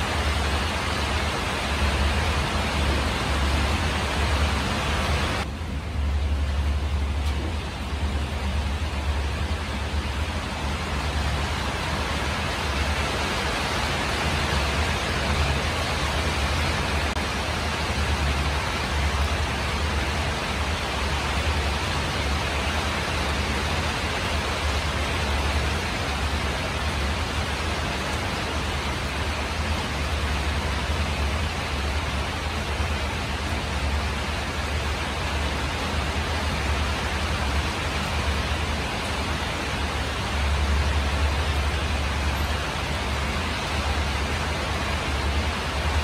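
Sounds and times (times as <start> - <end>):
rain on a tin roof: 0.0 - 46.0.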